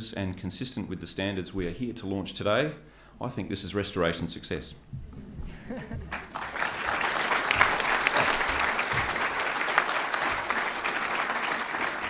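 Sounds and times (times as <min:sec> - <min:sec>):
audience applause: 0:06.1 - 0:12.0.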